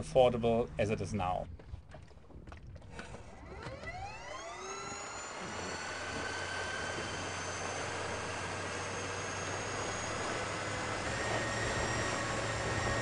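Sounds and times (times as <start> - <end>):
water rushing: 2.1 - 13.0
electric outboard motor whining: 2.9 - 13.0.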